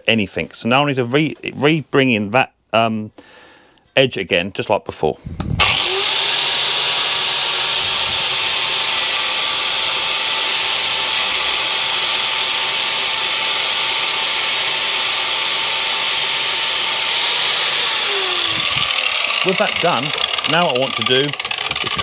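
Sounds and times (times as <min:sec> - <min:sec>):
angle grinder motor whining: 0:05.3 - 0:22.0
disc grinding steel: 0:05.6 - 0:22.0.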